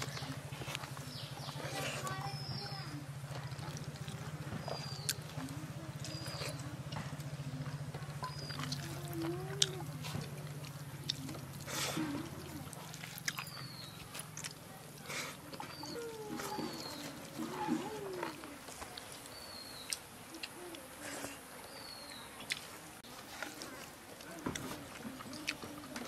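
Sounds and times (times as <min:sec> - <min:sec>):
bird chirps: 0:04.5 - 0:05.3, 0:08.2 - 0:08.8.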